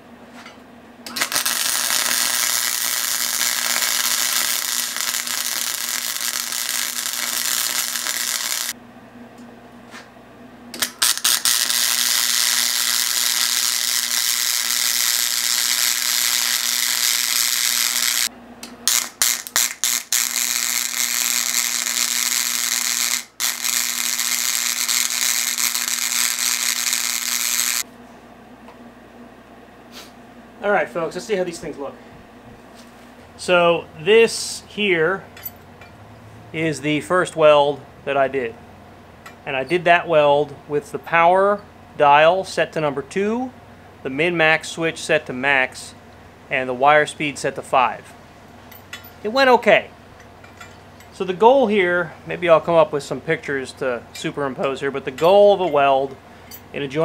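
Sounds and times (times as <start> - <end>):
welding arc crackling and hissing: 1.1 - 8.8, 10.8 - 27.9.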